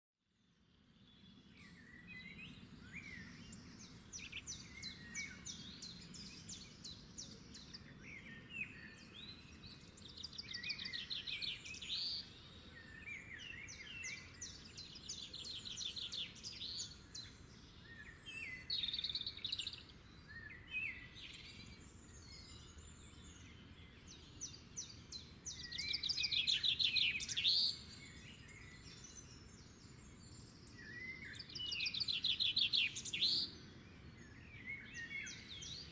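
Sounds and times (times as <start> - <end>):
songbirds chirping and trilling: 0.4 - 35.9.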